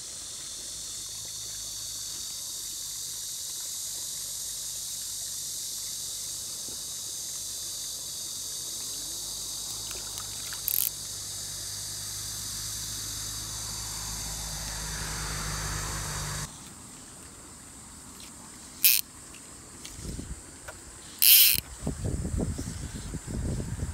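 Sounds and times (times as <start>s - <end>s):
insects chirping chorus: 0.0s - 23.9s
fish splashing in water: 9.7s - 11.0s
sharp click: 10.7s - 10.9s, 18.8s - 19.0s, 21.2s - 21.6s.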